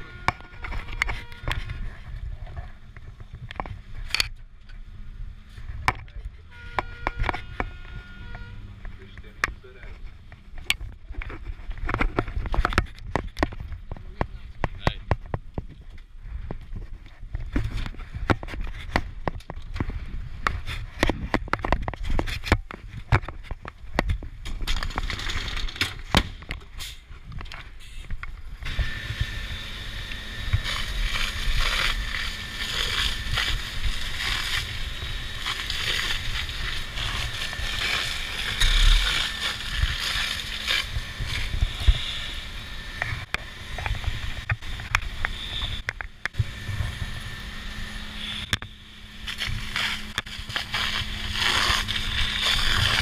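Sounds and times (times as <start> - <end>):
low hum: 0.0 - 53.0
fire hose spraying water: 28.7 - 42.6, 43.4 - 53.0.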